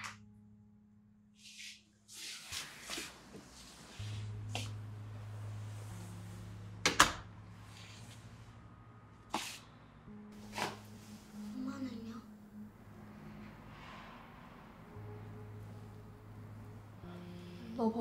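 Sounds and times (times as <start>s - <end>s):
low hum: 10.9s - 18.0s.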